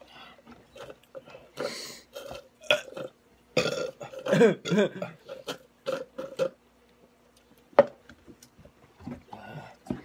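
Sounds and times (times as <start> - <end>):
person burping: 1.6 - 6.6.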